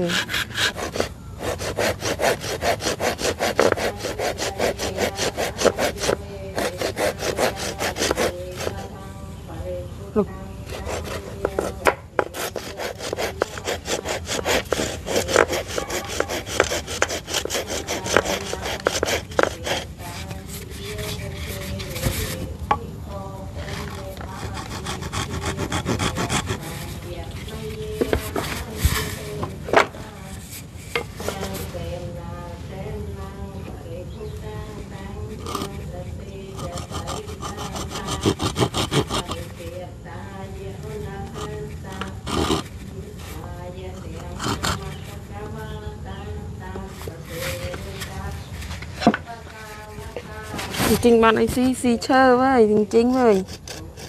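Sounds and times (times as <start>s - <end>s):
hand saw cutting wood: 0.0s - 8.9s, 10.7s - 22.4s, 23.6s - 27.0s, 36.6s - 39.5s, 41.3s - 42.8s, 44.2s - 45.1s, 50.0s - 54.0s
wood knocking and scraping: 26.0s - 31.6s, 47.4s - 51.7s.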